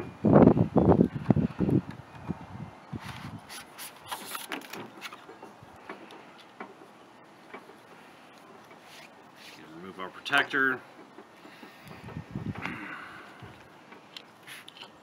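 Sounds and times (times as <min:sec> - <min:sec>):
wiper blade rubbing and rustling: 0:02.9 - 0:12.6, 0:13.5 - 0:15.0.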